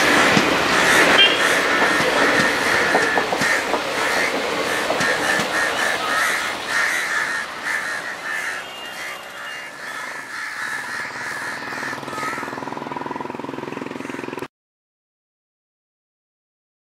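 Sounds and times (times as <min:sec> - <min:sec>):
train coaches rumbling: 0:00.0 - 0:14.3
crows cawing: 0:00.0 - 0:14.5.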